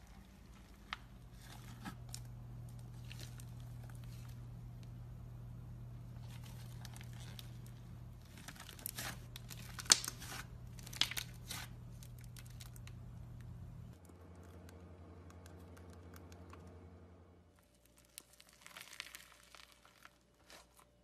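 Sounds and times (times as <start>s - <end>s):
steady low hum: 0.0s - 17.6s
hand squishing slime: 6.0s - 13.5s, 17.6s - 21.0s
crackly crunchy pops: 6.2s - 16.7s.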